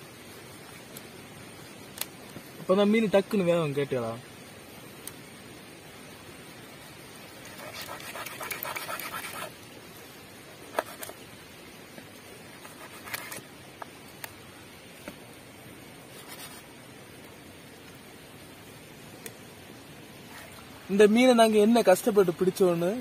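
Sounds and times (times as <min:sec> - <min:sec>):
knife sawing through eel: 0:07.5 - 0:09.5.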